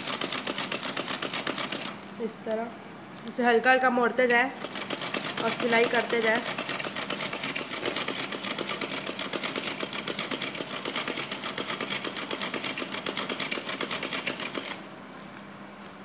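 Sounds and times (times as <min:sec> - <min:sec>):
sewing machine running: 0:00.0 - 0:02.0, 0:04.5 - 0:14.9.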